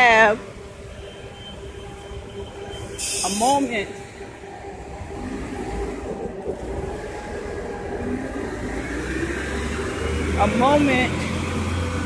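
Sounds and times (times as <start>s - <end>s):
cars passing on road: 0.0s - 12.0s.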